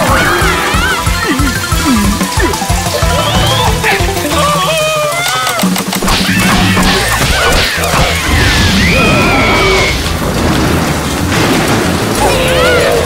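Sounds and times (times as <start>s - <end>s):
cartoon music: 0.0s - 10.0s
crashing impact effects: 6.0s - 12.3s
high gliding cartoon squeals: 6.2s - 10.1s.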